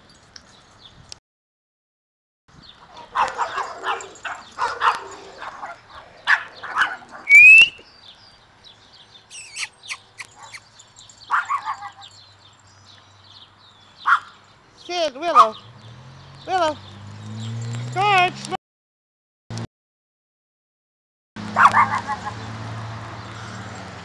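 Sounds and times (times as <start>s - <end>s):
puppies yipping and squealing: 2.9s - 7.8s, 9.3s - 12.2s, 21.6s - 22.5s.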